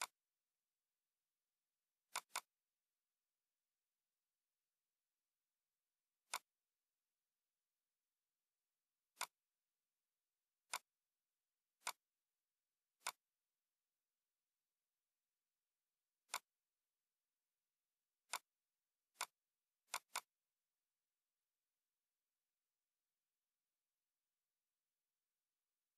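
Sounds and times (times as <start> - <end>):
computer mouse button clicking: 2.1 - 2.5, 6.2 - 6.5, 10.7 - 10.9, 13.0 - 13.2, 16.3 - 16.5, 19.2 - 20.3.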